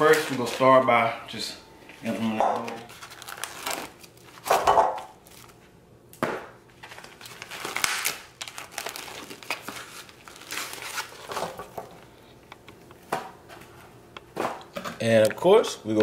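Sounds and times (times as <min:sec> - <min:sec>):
plastic wrap crinkling: 0:00.0 - 0:00.9, 0:02.0 - 0:05.6, 0:06.8 - 0:12.1.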